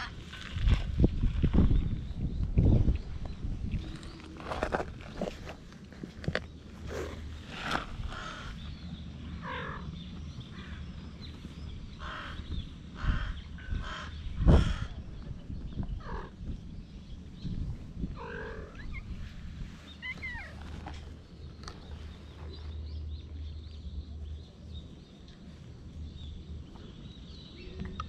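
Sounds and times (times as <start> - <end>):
animal calls: 18.2 - 21.1.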